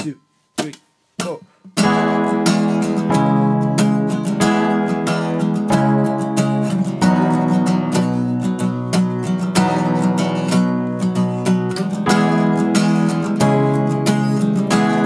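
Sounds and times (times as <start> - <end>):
acoustic guitar strumming chords: 0.0 - 15.0
keyboard playing sustained chords: 1.9 - 8.4, 11.8 - 15.0.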